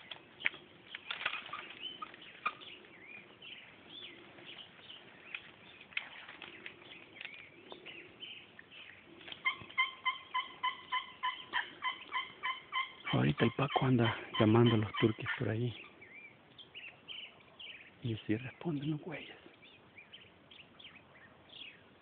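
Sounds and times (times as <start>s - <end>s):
small birds chirping: 0.0s - 22.0s
turkey yelps: 9.3s - 16.2s.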